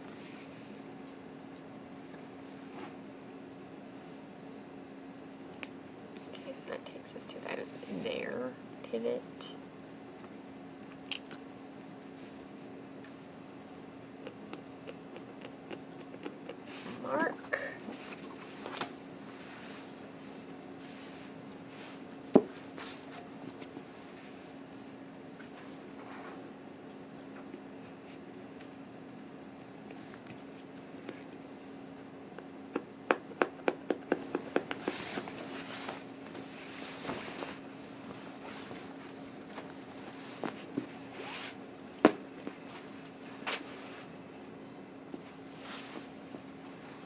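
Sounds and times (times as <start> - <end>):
steady low hum: 0.0 - 47.0
fabric rustling on cutting mat: 34.9 - 41.6, 45.1 - 47.0.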